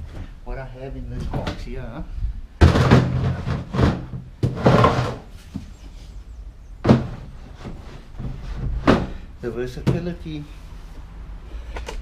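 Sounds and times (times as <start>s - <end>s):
plastic boxes clattering: 2.6s - 5.6s, 6.8s - 9.2s.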